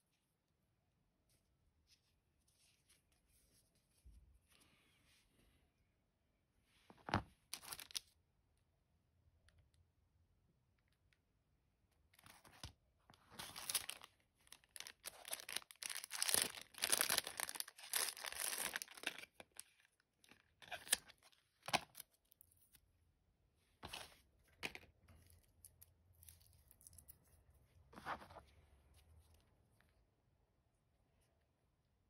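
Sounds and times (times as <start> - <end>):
plastic packaging crinkling: 13.4 - 19.9.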